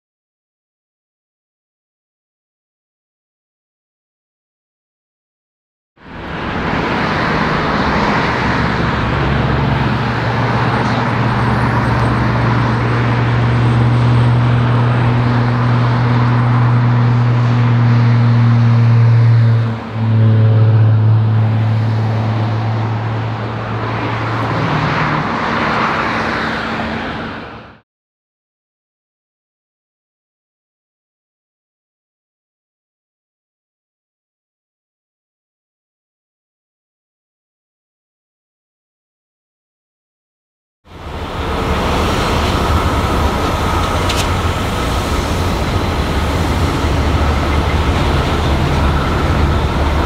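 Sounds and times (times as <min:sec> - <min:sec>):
diesel locomotive engine drone: 0:06.0 - 0:27.8, 0:40.9 - 0:50.0
road traffic noise: 0:06.0 - 0:27.8, 0:40.9 - 0:50.0.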